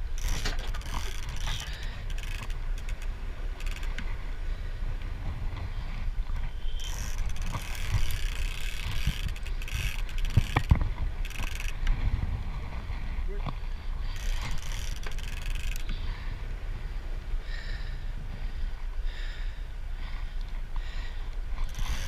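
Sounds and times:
fishing reel gear whirring: 0.0s - 4.2s, 6.6s - 11.9s, 14.0s - 16.1s, 21.5s - 22.0s
steady low rumble: 0.0s - 22.0s.

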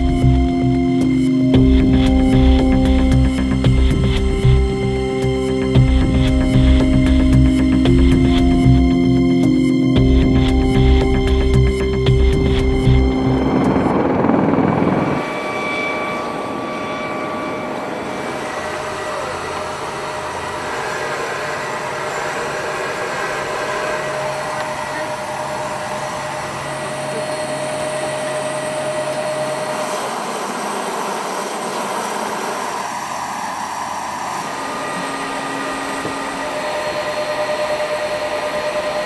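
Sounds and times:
background music: 0.0s - 15.2s
helicopter turbine whine: 0.0s - 39.0s.

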